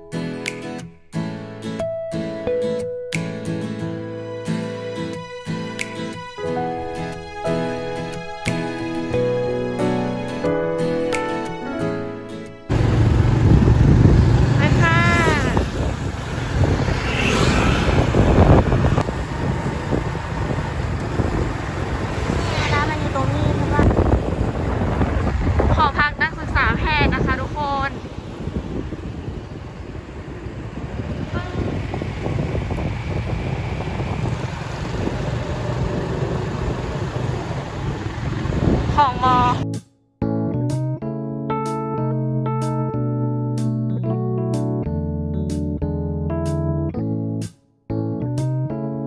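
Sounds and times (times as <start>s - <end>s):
cars passing: 12.7s - 39.6s
road traffic rumble: 12.7s - 39.6s
wind buffeting microphone: 12.7s - 39.6s.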